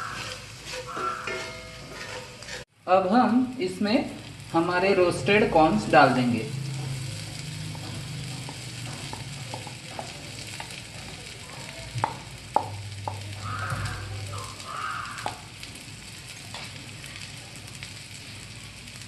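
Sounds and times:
oil sizzling in a pan: 0:00.0 - 0:19.0
spatula knocking against pan: 0:06.8 - 0:10.8, 0:12.0 - 0:14.0.

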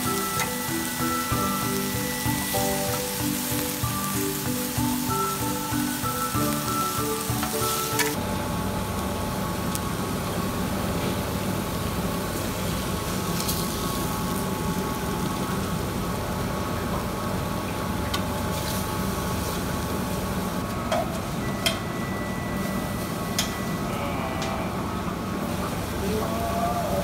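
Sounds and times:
meat sizzling on a griddle: 0:00.0 - 0:08.2, 0:11.7 - 0:16.0, 0:18.5 - 0:20.7
low mechanical hum: 0:00.0 - 0:27.0.

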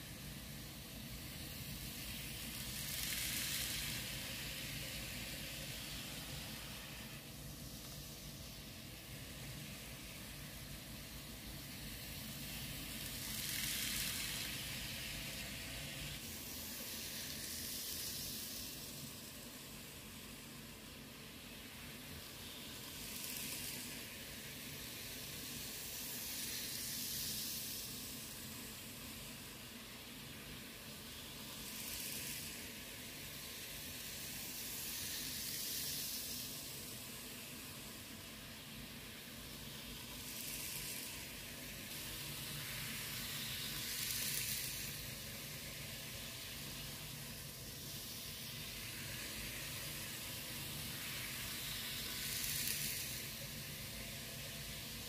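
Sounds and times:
model train whirring on track: 0:00.0 - 0:55.0.

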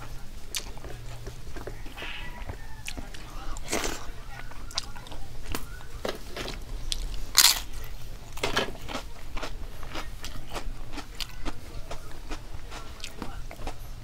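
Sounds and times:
person chewing and crunching food: 0:00.0 - 0:14.0.

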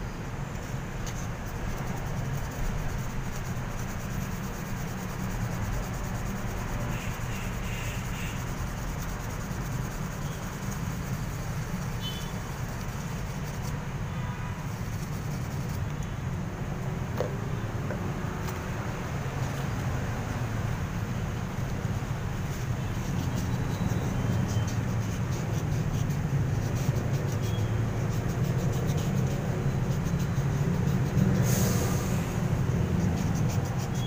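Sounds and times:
sandpaper scratching metal: 0:01.0 - 0:13.8, 0:14.6 - 0:15.8, 0:22.4 - 0:31.6, 0:32.4 - 0:34.0.

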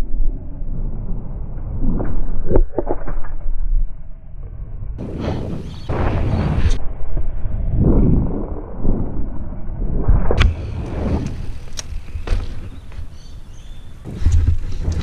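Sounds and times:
wind buffeting microphone: 0:05.0 - 0:15.0
bike tyres rumbling on concrete: 0:10.4 - 0:15.0
bike knocks and rattles: 0:11.3 - 0:13.4.

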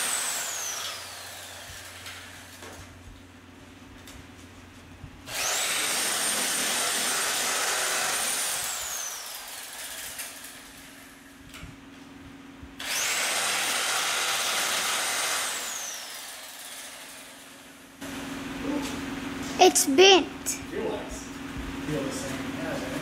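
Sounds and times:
reciprocating saw cutting: 0:00.0 - 0:02.4, 0:05.3 - 0:10.5, 0:12.8 - 0:17.4.

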